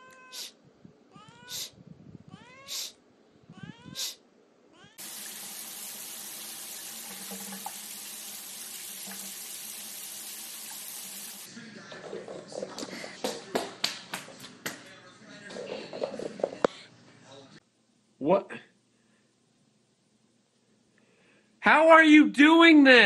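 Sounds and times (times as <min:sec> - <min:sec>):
cat meowing: 0:00.0 - 0:05.0
shower spraying into bathtub: 0:05.0 - 0:11.5.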